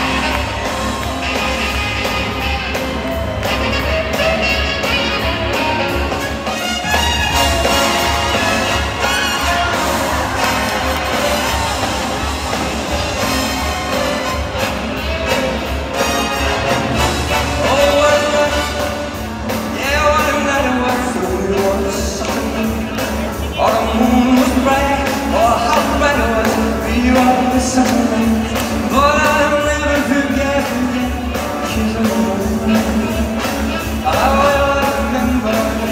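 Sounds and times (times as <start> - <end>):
band and orchestra playing: 0.0 - 35.9
man singing into a microphone: 19.7 - 35.9.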